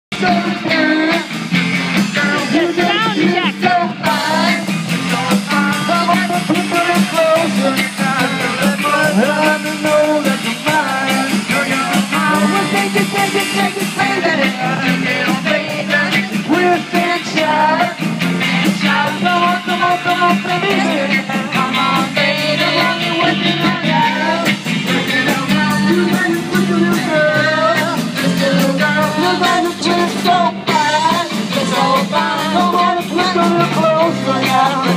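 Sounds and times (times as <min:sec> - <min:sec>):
drum kit steady beat: 0:00.1 - 0:34.9
electric guitars: 0:00.1 - 0:34.9
women singing: 0:00.2 - 0:34.9.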